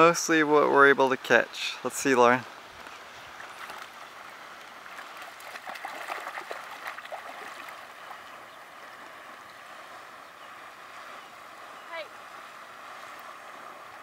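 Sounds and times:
faint watery hiss: 0.0 - 6.0, 6.6 - 14.0
dog splashing in water: 5.0 - 7.9.

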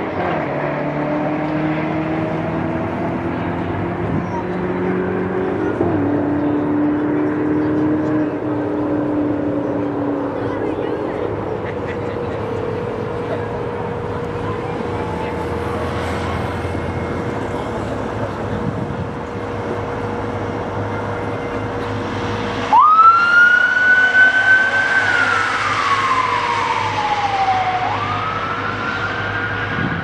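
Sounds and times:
steady drone: 0.0 - 30.0
police siren wailing: 7.2 - 30.0.

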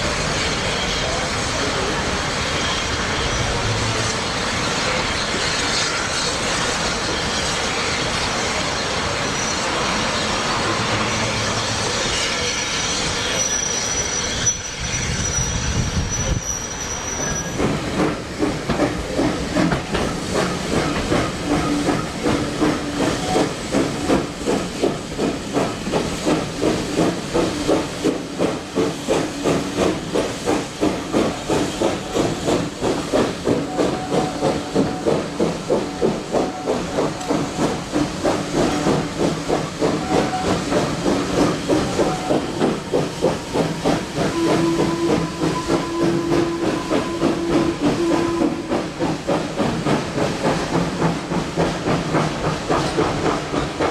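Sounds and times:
steam hissing: 0.0 - 53.9
rhythmic train beat: 17.5 - 53.9.

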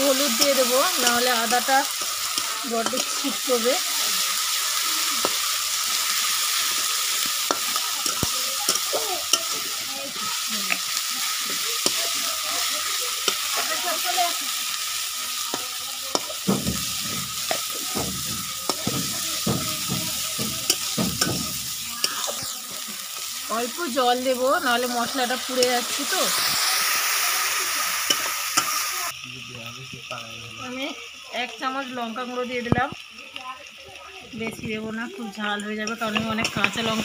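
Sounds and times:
food sizzling in hot oil: 0.0 - 37.0
oil popping: 15.1 - 24.0
spatula scraping a pan: 15.5 - 23.4.

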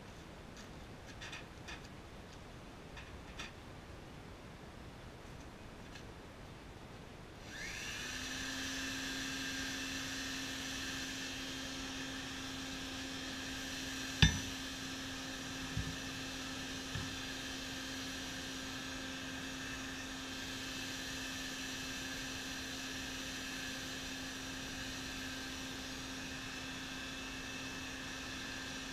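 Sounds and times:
electric air blower whining: 7.4 - 28.9
hammer clanking on anvil: 14.2 - 14.6.

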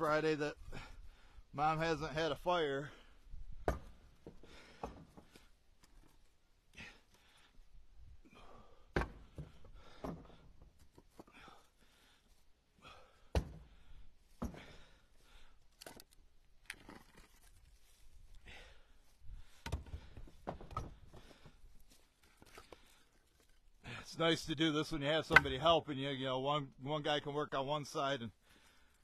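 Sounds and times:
firewood knocking and thunking: 3.5 - 6.2, 8.6 - 11.6, 13.2 - 15.0, 19.4 - 23.5, 25.2 - 25.7.

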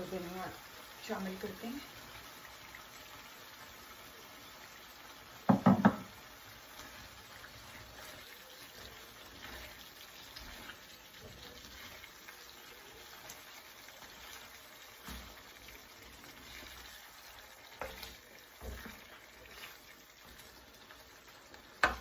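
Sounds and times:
stirring simmering sauce: 1.9 - 22.0
spatula knocking against pan: 5.4 - 6.2, 21.8 - 22.0.

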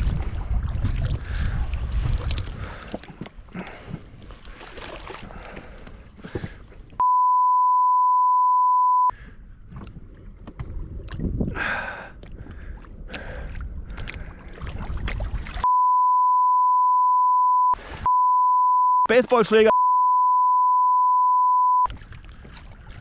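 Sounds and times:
wind on microphone: 0.0 - 2.9, 9.6 - 15.6
water lapping against boat: 0.0 - 7.0, 9.2 - 15.7, 21.9 - 23.0
censor bleep tone: 7.0 - 9.1, 15.6 - 19.1, 19.7 - 21.9.

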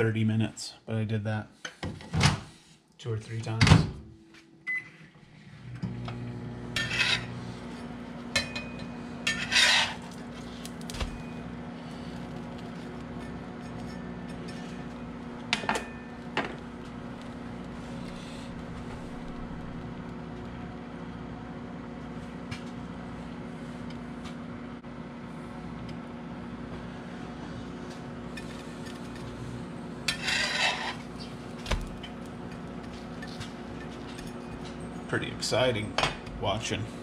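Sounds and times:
low kitchen hum: 0.0 - 37.0
sandwich scraping across skillet: 6.8 - 8.1, 8.9 - 15.4, 16.0 - 19.8, 30.0 - 34.7.

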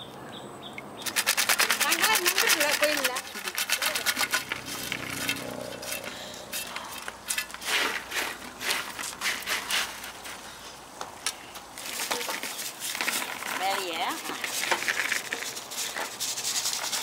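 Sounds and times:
crisp chips rustling and clicking: 1.0 - 10.4, 11.3 - 17.0.

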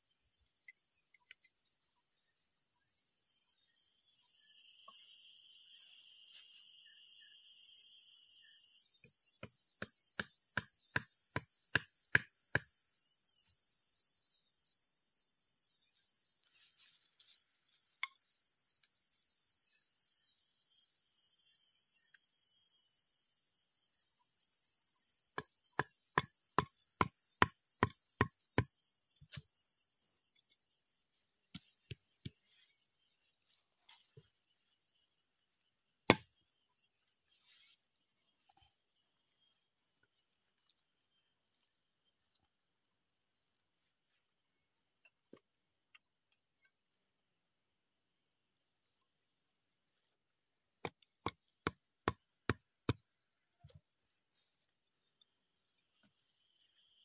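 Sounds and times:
high insect drone: 0.0 - 16.5
insects droning: 0.0 - 57.0
sharp knocks on bamboo frame: 9.4 - 12.7.

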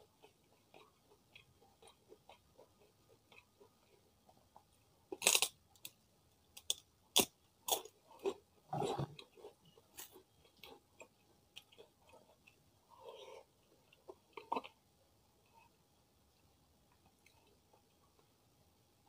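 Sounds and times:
chewing: 0.0 - 5.4, 7.2 - 14.8
cracker crunching: 5.1 - 6.0.

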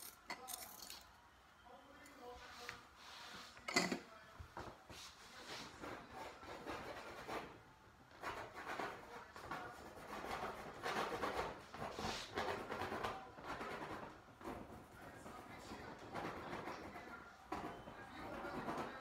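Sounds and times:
paintbrush scrubbing on canvas: 2.4 - 3.6, 8.2 - 17.3.

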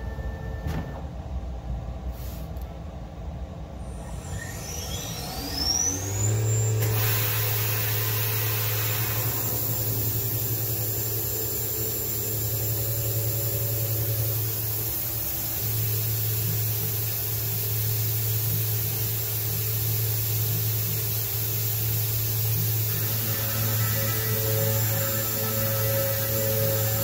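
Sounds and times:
low hum of table drives: 2.6 - 27.0
milling spindle whine: 3.8 - 27.0
coolant spray hissing: 6.8 - 27.0.

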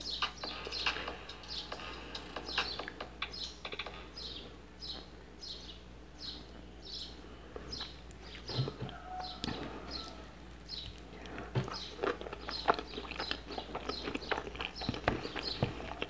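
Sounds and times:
chewing with wet mouth clicks: 10.8 - 16.0.

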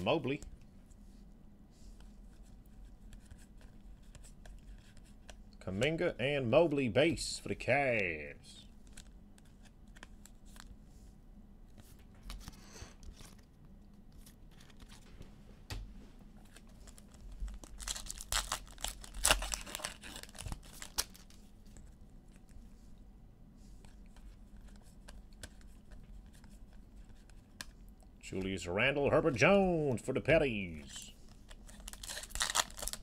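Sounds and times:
wrapper ripping and crinkling: 16.8 - 21.4, 31.5 - 33.0.

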